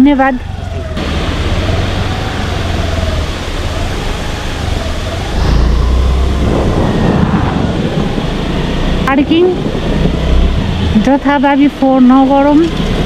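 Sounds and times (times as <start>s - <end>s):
motorcycle engine: 0.5s - 11.4s
wind on microphone: 3.9s - 13.0s.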